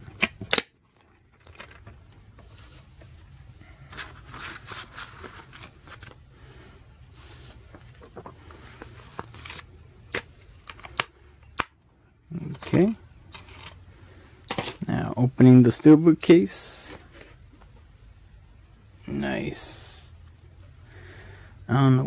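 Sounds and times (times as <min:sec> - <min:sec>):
plastic case rustling and scraping: 0:01.0 - 0:06.2, 0:07.1 - 0:11.0, 0:12.6 - 0:13.8.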